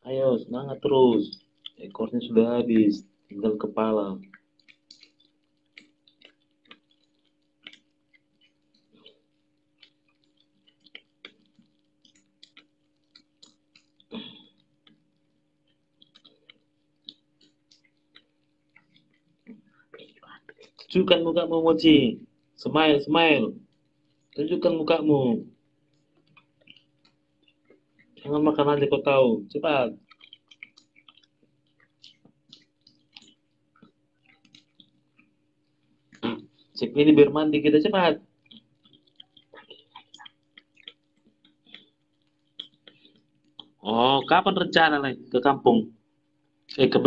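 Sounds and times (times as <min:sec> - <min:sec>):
otter chewing wet crunches: 0:00.7 - 0:44.8.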